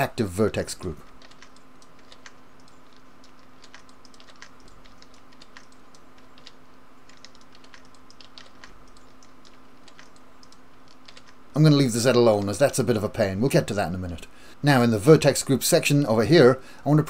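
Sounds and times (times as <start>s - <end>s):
faint steady hum: 0.0s - 17.0s
keyboard keystrokes: 1.1s - 11.4s
mouse clicks: 1.2s - 11.4s.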